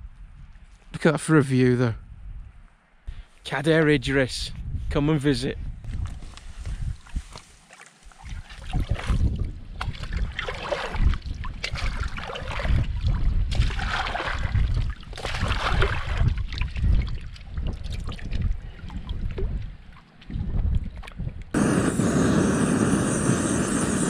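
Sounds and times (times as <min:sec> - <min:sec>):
wind on microphone: 0:04.5 - 0:07.5, 0:08.2 - 0:24.0
water splashing and gurgling: 0:07.0 - 0:21.4.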